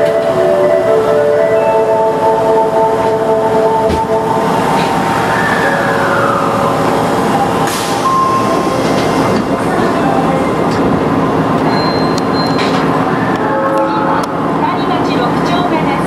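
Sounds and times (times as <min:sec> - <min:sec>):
subway train hum and rush: 0:00.0 - 0:16.0
falling whine: 0:03.6 - 0:09.1.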